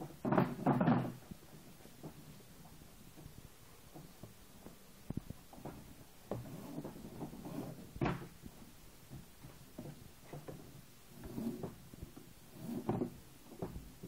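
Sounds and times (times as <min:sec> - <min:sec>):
knocks and clunks on steel frame: 0:00.0 - 0:02.3
soft tapping and rustling: 0:00.0 - 0:14.0.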